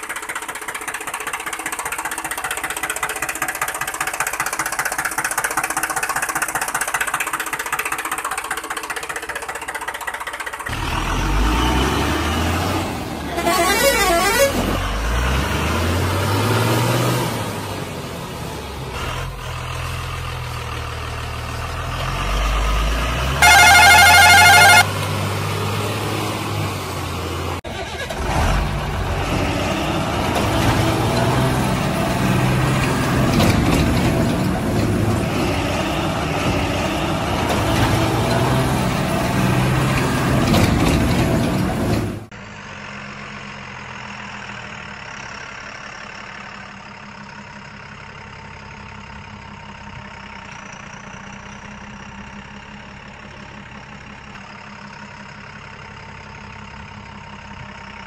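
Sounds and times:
truck engine revving: 0.0 - 48.3
loud truck horn: 13.2 - 15.2, 23.4 - 25.0.

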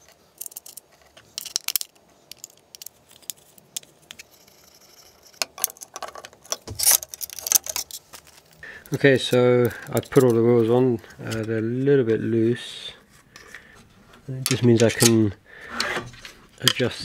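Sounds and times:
screws and washers clinking: 0.0 - 8.6.

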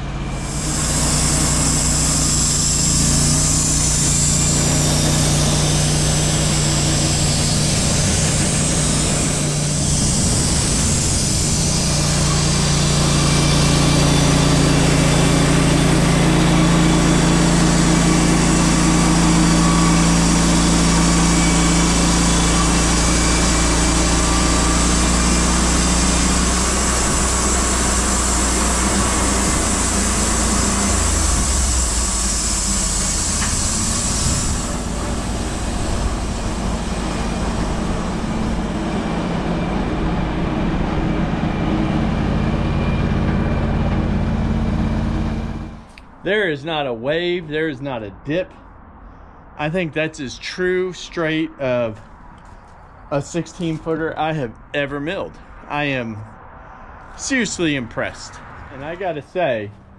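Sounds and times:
band saw blade sawing log: 0.0 - 40.1
gas engine running under load: 0.0 - 46.2.

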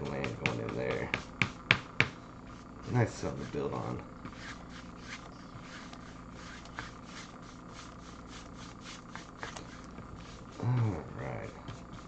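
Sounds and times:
paintbrush scrubbing on canvas: 2.4 - 12.0.

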